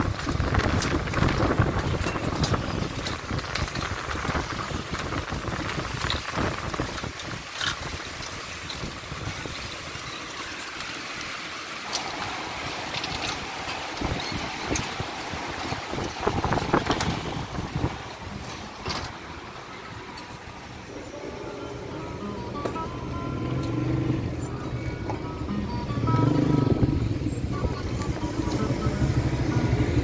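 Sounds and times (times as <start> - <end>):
wind on microphone: 0.0 - 9.8, 13.0 - 18.6, 26.6 - 30.0
river rushing: 0.3 - 30.0.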